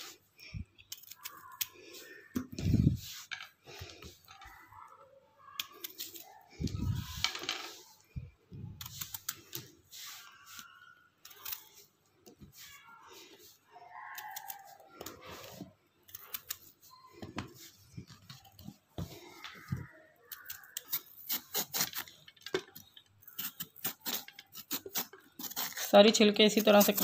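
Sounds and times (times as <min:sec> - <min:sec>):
knife scraping gourd skin: 0:20.3 - 0:22.2, 0:23.3 - 0:27.0.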